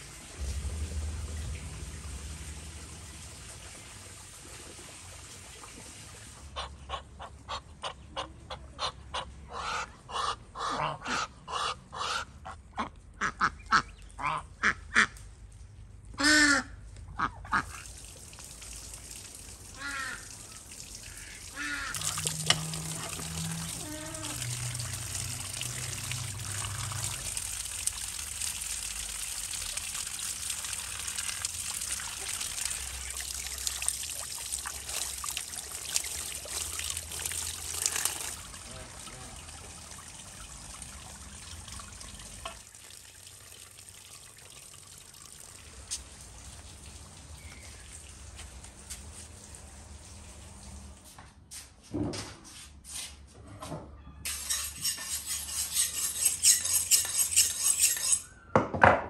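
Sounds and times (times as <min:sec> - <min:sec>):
trickling water hiss: 0:00.0 - 0:06.8, 0:17.6 - 0:51.1
waterfowl calling: 0:06.6 - 0:12.4, 0:19.8 - 0:25.0.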